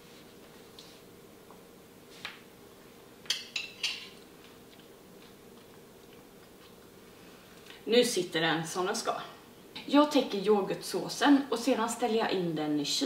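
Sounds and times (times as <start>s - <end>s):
metal spoon clinking on plate: 3.3s - 4.2s.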